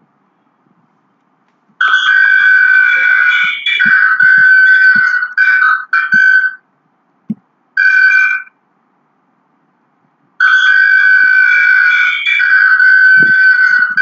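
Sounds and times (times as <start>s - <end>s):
high-pitched audio feedback howl: 1.8s - 6.6s, 10.4s - 14.0s.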